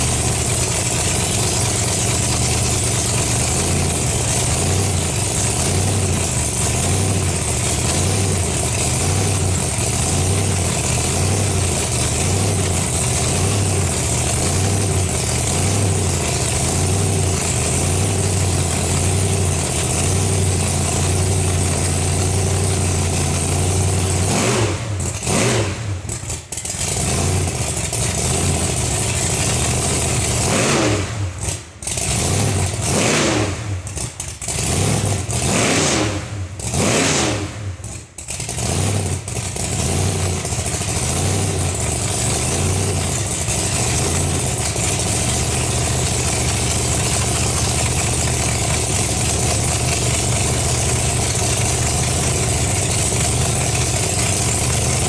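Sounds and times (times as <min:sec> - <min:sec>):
car engine idling lumpily: 0:00.0 - 0:30.5, 0:33.8 - 0:35.4, 0:37.8 - 0:55.0
engine throttle blips: 0:35.0 - 0:55.0.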